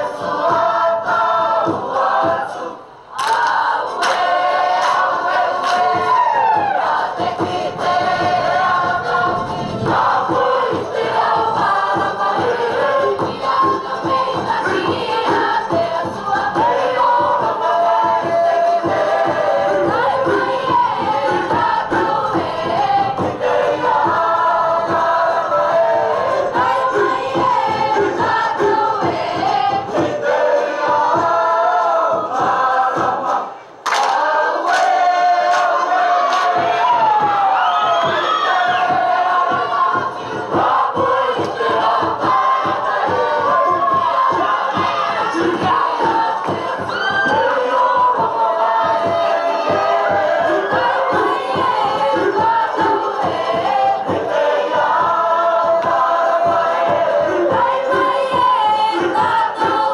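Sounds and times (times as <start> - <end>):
group singing in chorus: 0.0 - 59.9
percussive beat: 0.0 - 59.9.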